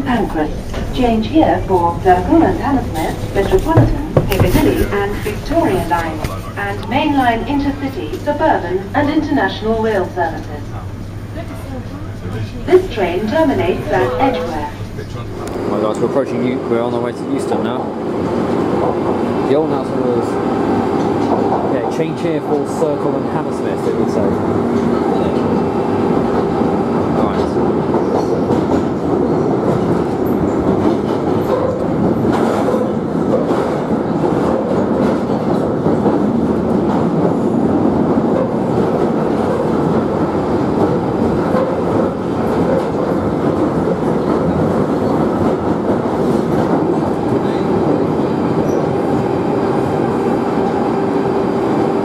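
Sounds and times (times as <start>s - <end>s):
train wheels rumbling on rail: 0.0s - 14.1s, 14.7s - 52.0s
humming drone: 13.0s - 15.9s
rail clicks: 20.7s - 26.8s, 27.4s - 52.0s.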